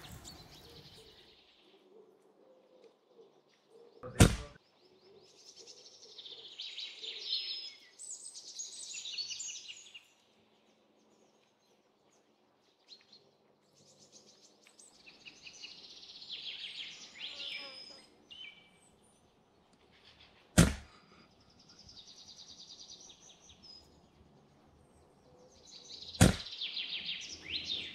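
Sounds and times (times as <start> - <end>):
small birds chirping: 0.0 - 27.9
air rifle shot: 4.1 - 4.6, 20.6 - 21.0, 26.2 - 26.5.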